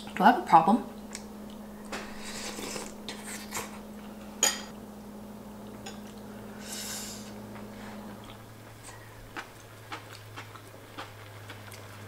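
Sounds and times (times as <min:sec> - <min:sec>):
steady low hum: 0:00.0 - 0:12.0
chopsticks and dishes clinking: 0:04.4 - 0:04.7.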